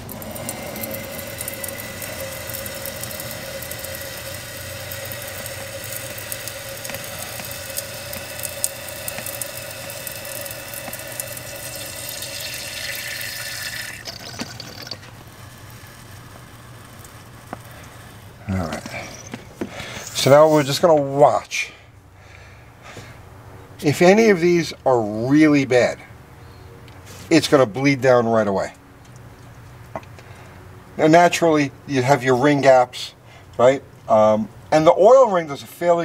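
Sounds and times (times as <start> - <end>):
gasoline trickling into cylinder: 0.0 - 20.8.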